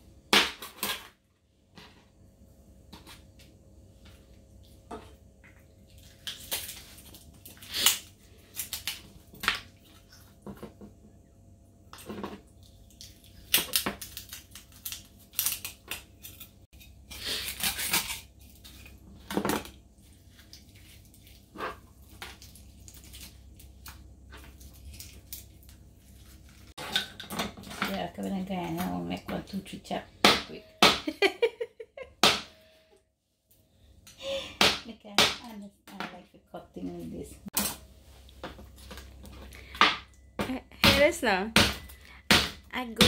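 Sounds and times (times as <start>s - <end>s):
knife scraping fish scales: 14.1s - 18.9s.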